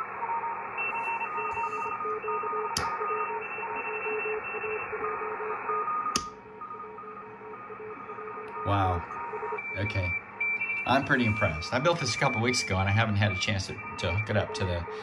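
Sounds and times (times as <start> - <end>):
switch clicks: 2.8 - 3.0, 6.1 - 6.4
faint keyed tones: 5.8 - 15.0
radio static hiss: 7.8 - 15.0.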